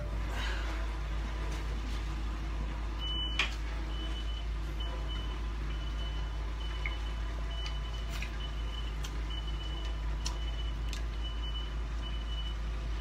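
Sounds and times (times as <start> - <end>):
vehicle backup alarm beeping: 3.0 - 13.0.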